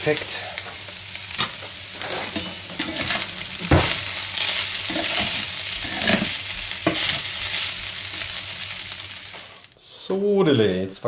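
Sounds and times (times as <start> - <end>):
food sizzling in a frying pan: 0.0 - 9.7
spatula stirring and scraping: 4.4 - 7.7.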